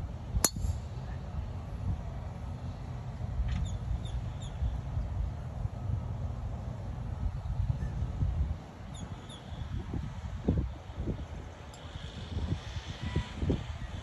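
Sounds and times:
wind rumble on microphone: 0.0s - 14.0s
golf driver striking ball: 0.4s - 0.8s.

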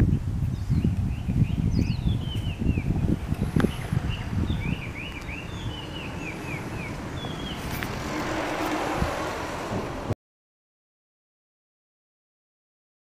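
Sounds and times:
small birds chirping: 0.0s - 8.1s
wind rumbling on microphone: 0.0s - 10.2s
rushing noise: 2.5s - 10.2s.

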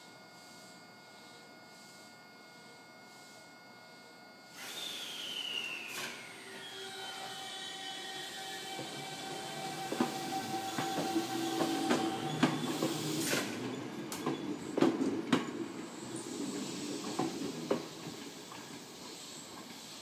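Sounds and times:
train wheels clacking over joints: 8.7s - 15.6s.

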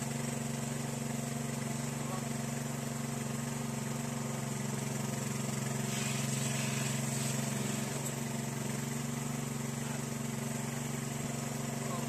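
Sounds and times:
water pump engine running: 0.0s - 12.0s.

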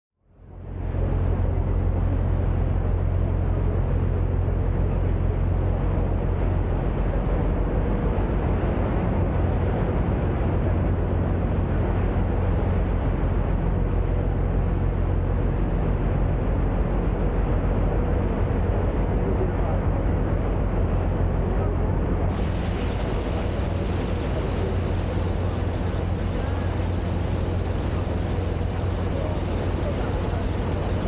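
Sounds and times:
boat engine running: 0.3s - 31.0s
rushing hiss: 22.3s - 31.0s.

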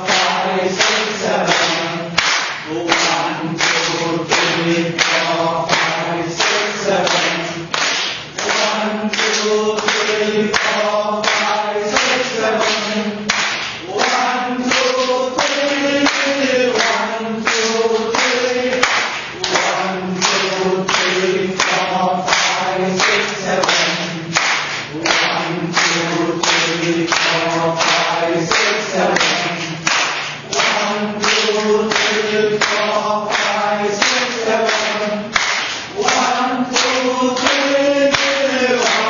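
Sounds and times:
group clapping in rhythm: 0.0s - 39.0s
voices singing together: 0.0s - 39.0s.

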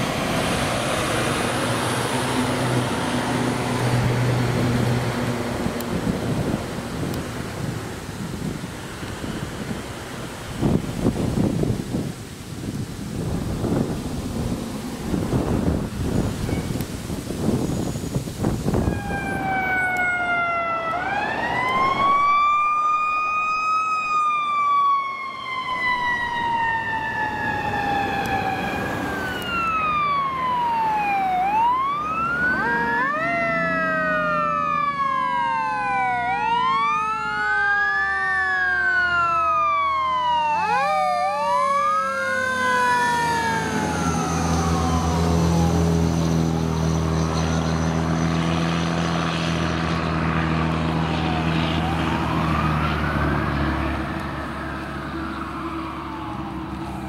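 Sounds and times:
fire engine rumble: 0.0s - 48.4s, 49.3s - 57.0s
electronic sirens wailing: 17.8s - 49.2s, 49.9s - 57.0s.

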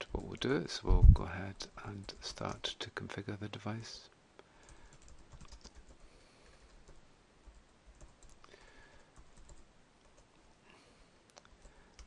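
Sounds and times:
keyboard typing: 4.6s - 6.0s, 6.7s - 10.3s.

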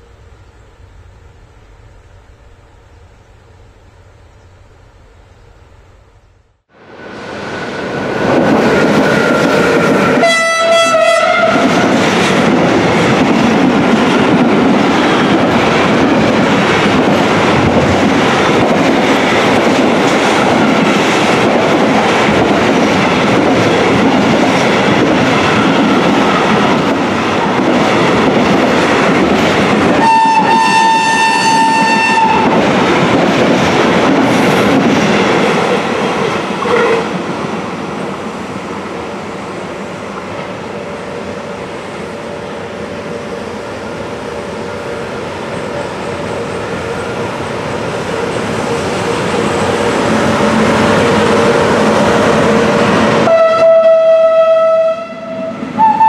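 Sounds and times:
steam train passing: 6.6s - 56.0s
steam whistle: 10.0s - 11.8s, 30.0s - 32.5s, 36.6s - 37.1s, 53.2s - 56.0s.

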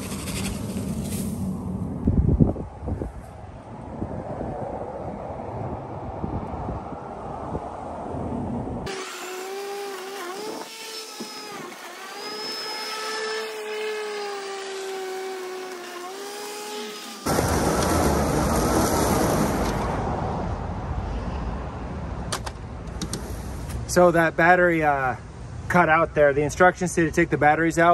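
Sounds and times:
lawn mower motor whining: 0.0s - 1.6s, 8.9s - 20.0s
rough rushing noise: 0.0s - 3.2s, 17.2s - 21.5s.

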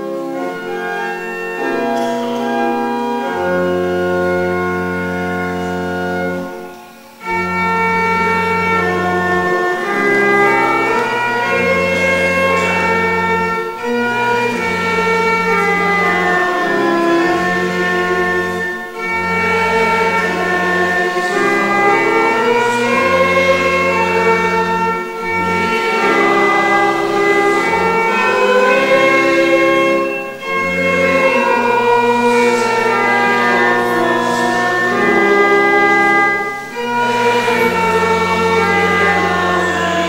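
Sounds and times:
congregation singing a hymn: 0.0s - 40.0s
organ accompaniment: 0.0s - 40.0s.

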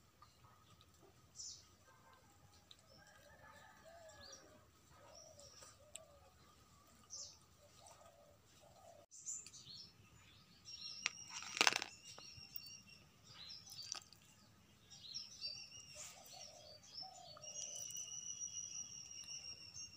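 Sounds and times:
birds chirping: 4.9s - 19.9s
steady high-pitched trill: 17.4s - 19.9s.

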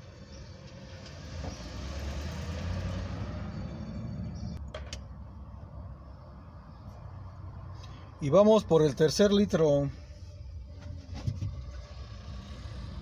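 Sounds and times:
vehicle engine passing by: 0.2s - 4.6s, 10.0s - 13.0s.

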